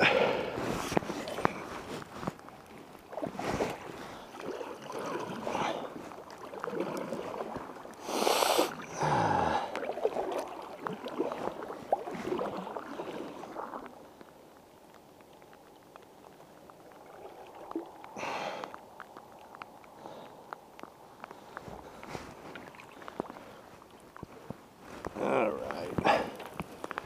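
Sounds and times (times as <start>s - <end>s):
paddle splashing in water: 0.0s - 20.3s, 21.2s - 27.0s.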